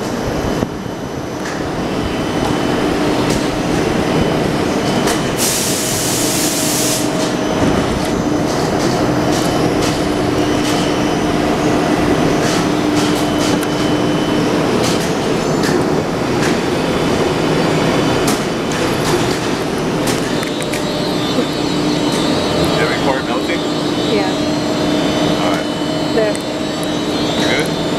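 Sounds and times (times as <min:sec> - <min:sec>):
machine rumble and hum: 0:00.0 - 0:27.9
air hiss: 0:05.4 - 0:07.3.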